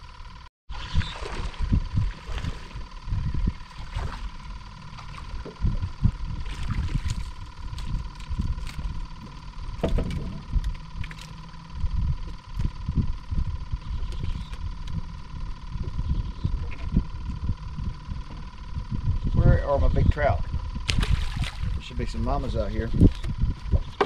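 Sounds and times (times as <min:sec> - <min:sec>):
wind rumbling on microphone: 0:00.7 - 0:24.0
water splashes: 0:00.9 - 0:02.8, 0:20.9 - 0:21.8.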